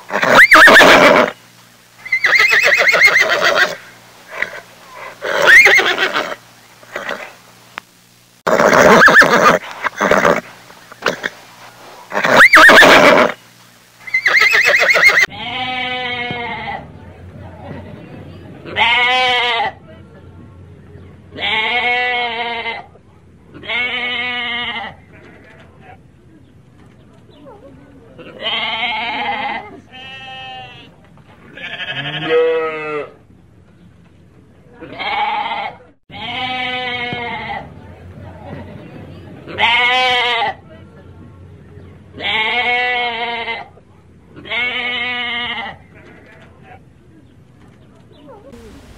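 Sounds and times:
horse neighing: 0:00.1 - 0:01.4, 0:02.0 - 0:07.3, 0:08.5 - 0:11.4, 0:12.1 - 0:13.4, 0:14.0 - 0:15.3
sheep bleating: 0:31.6 - 0:33.1.

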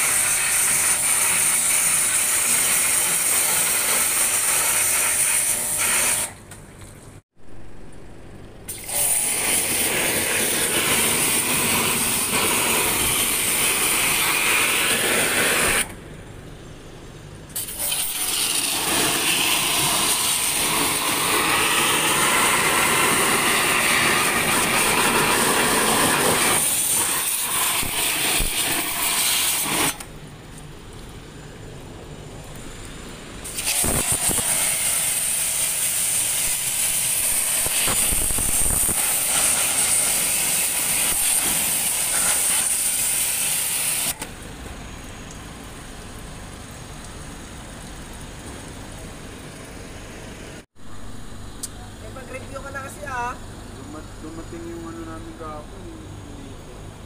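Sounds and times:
pressure washer spraying water: 0:00.0 - 0:06.4, 0:08.7 - 0:15.9, 0:17.6 - 0:30.0, 0:33.4 - 0:44.4.

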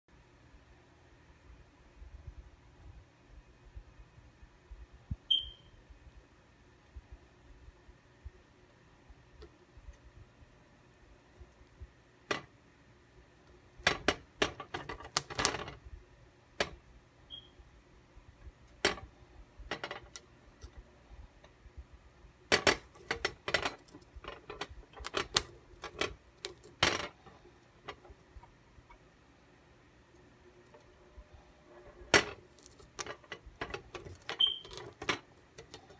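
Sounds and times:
corn crackling on a stove burner: 0:13.8 - 0:15.8, 0:22.5 - 0:28.5, 0:32.1 - 0:35.9.

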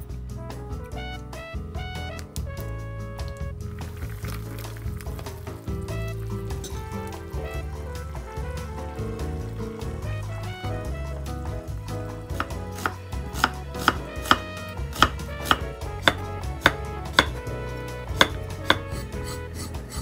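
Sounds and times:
knife chopping on wooden board: 0:12.3 - 0:17.5, 0:18.1 - 0:20.0.

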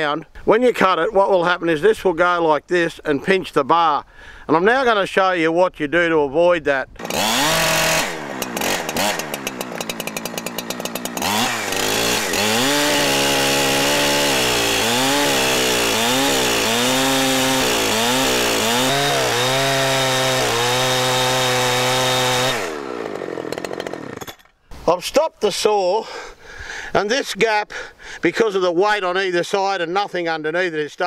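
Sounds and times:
chainsaw cutting log: 0:07.0 - 0:24.8.

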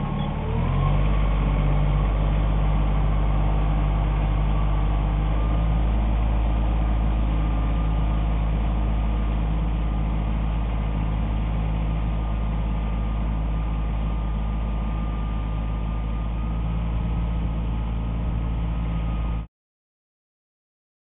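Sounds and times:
tractor engine hum: 0:00.0 - 0:19.5.

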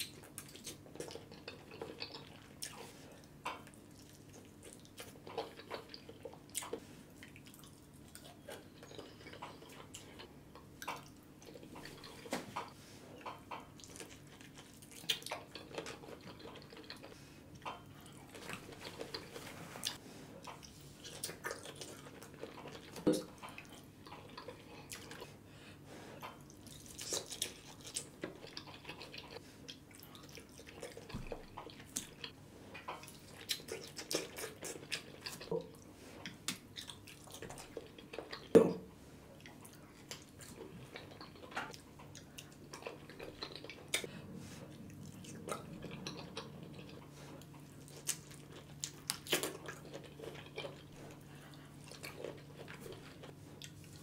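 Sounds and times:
wet eating and lip smacks: 0:00.0 - 0:25.4, 0:26.2 - 0:38.7, 0:39.3 - 0:54.0
faint steady hum: 0:00.0 - 0:54.0.

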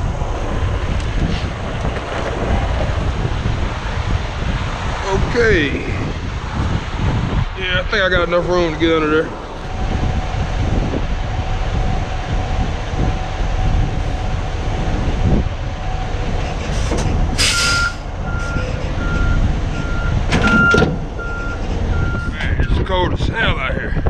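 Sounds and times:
diesel truck engine running: 0:00.0 - 0:24.0
backup alarm beeping: 0:17.4 - 0:22.4.

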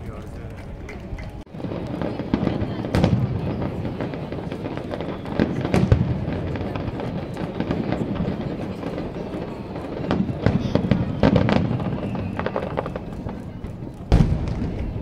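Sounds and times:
fireworks bursting: 0:01.5 - 0:15.0.

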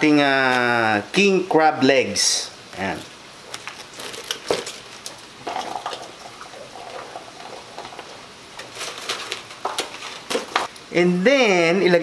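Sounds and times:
water boiling in a pot: 0:05.1 - 0:08.8.

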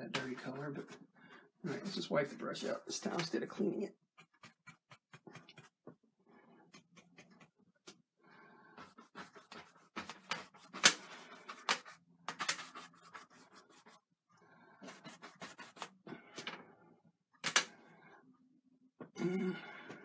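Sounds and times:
paint brush scrubbing on canvas: 0:00.0 - 0:07.6, 0:08.6 - 0:14.1, 0:14.8 - 0:16.1.

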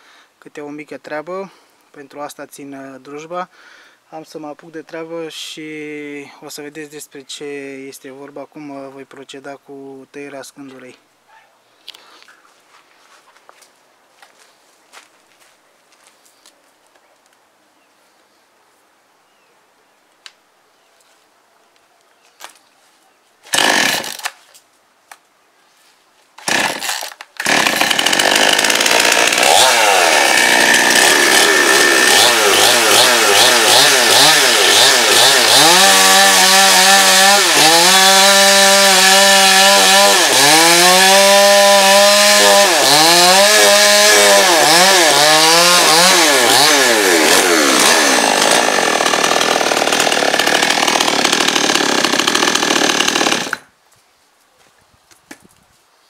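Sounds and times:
chainsaw cutting boards: 0:23.4 - 0:24.6, 0:26.4 - 0:53.7.

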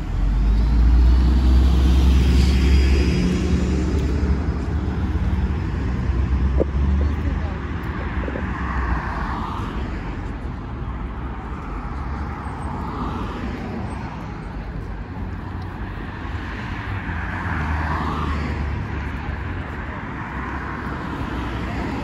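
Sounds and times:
cars passing: 0:00.0 - 0:22.0
low traffic rumble: 0:00.0 - 0:22.0.

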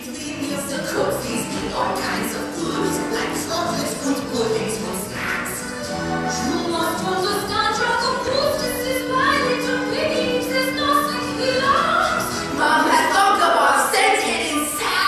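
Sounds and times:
young voices singing together: 0:06.7 - 0:15.0.

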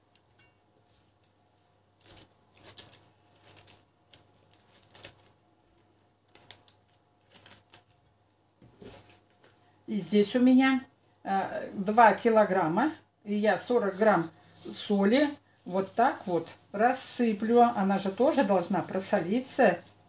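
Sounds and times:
cabbage crackling and rustling: 0:00.0 - 0:08.2, 0:13.5 - 0:20.0.

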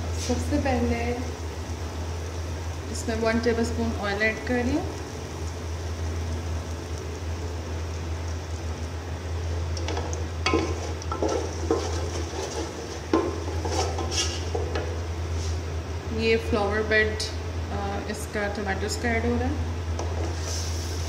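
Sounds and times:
oil sizzling in a pot: 0:00.0 - 0:15.7, 0:19.9 - 0:21.0
steady low hum: 0:00.0 - 0:21.0
wooden spoon scraping a pot: 0:10.5 - 0:14.8, 0:20.1 - 0:20.8.

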